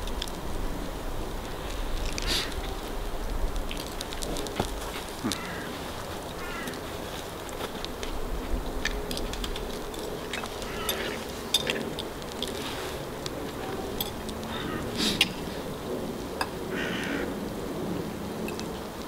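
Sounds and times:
metal cutlery clinking on pans: 9.9 - 11.9.

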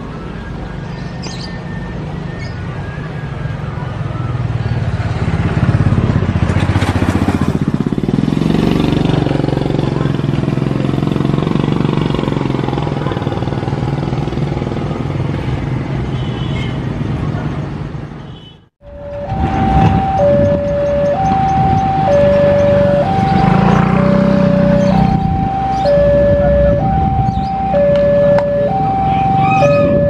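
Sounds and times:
vehicle engines passing: 0.0 - 18.2, 18.8 - 30.0.

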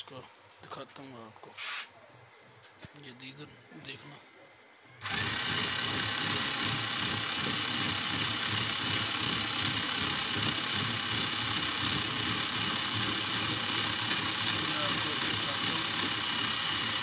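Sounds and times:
small motor whirring and whining: 5.0 - 17.0.

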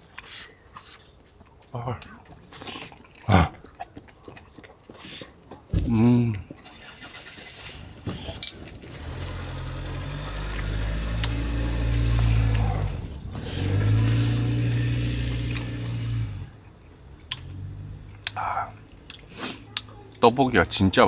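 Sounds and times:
car engine running: 9.0 - 18.3.

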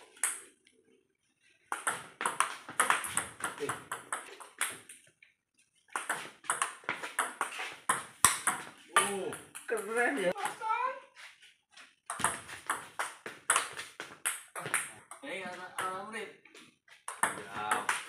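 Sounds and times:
ball bouncing on table: 1.7 - 4.9, 6.0 - 10.6, 12.1 - 16.0, 17.1 - 18.0.

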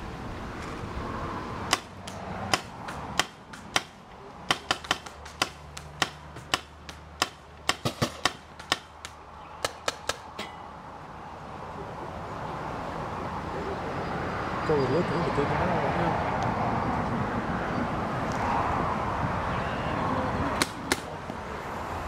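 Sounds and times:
paintball markers popping: 4.5 - 10.3.

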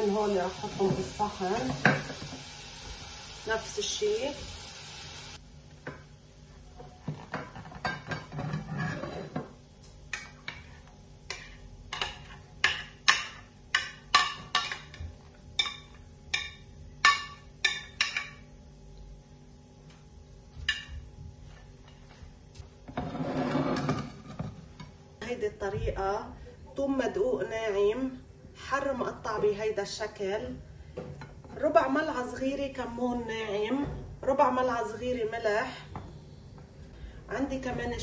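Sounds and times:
metal spatula scraping glass dish: 8.3 - 9.4, 22.9 - 24.3.

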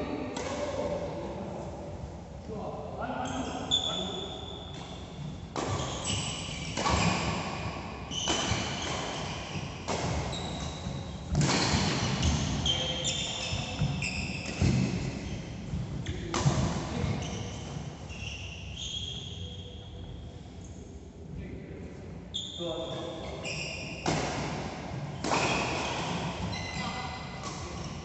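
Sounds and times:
shoes squeaking on court mat: 3.2 - 16.3, 16.9 - 20.1, 22.3 - 24.1, 25.2 - 28.0
rackets striking shuttlecock: 8.2 - 10.3, 11.3 - 12.6.

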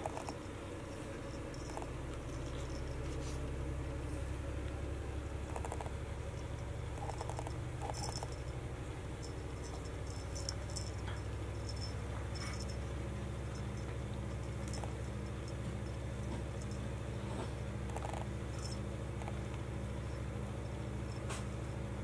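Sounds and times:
low hum: 0.0 - 22.0
feather toy rustles and clicks: 7.0 - 8.4.

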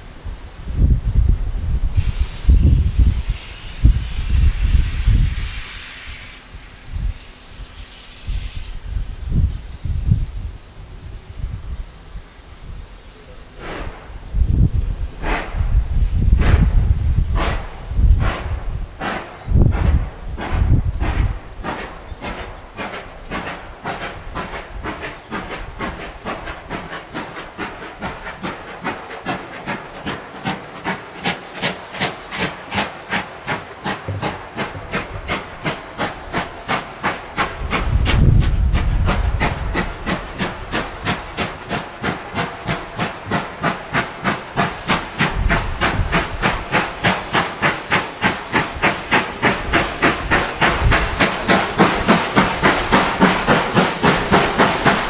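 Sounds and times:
steam locomotive exhaust beats: 0.0 - 55.0.

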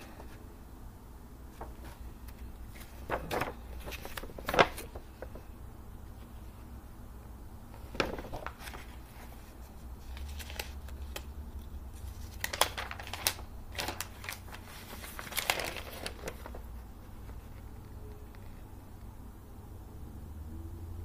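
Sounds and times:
magazine pages rustling: 1.5 - 5.5, 7.8 - 17.8.

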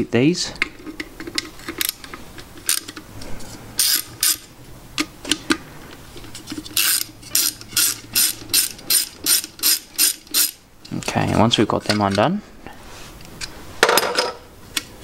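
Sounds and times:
socket ratchet clicking: 3.8 - 5.1, 6.7 - 10.6.

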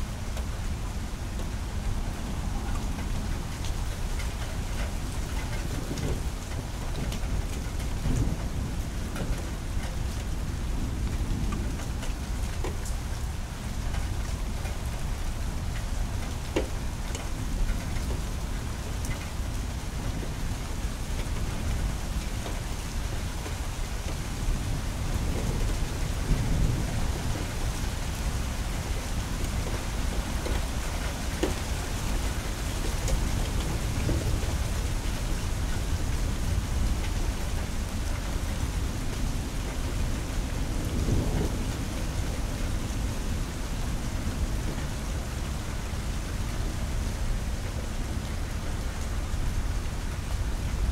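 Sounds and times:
steady rain falling: 0.0 - 50.9
low thunder rumbling: 24.3 - 31.1, 32.0 - 50.9.

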